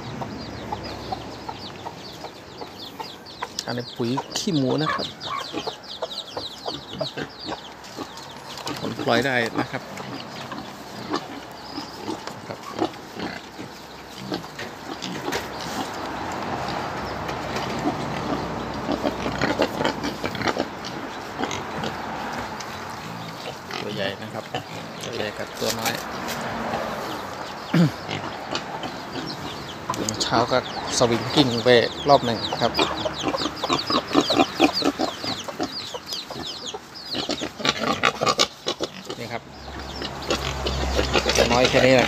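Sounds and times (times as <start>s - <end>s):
chickens clucking: 0.0s - 42.0s
pigs grunting: 0.0s - 42.0s.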